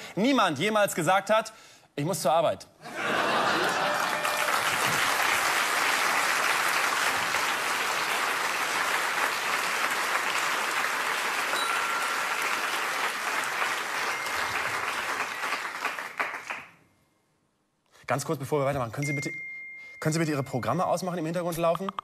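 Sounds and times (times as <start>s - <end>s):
studio audience applauding: 3.1s - 16.8s.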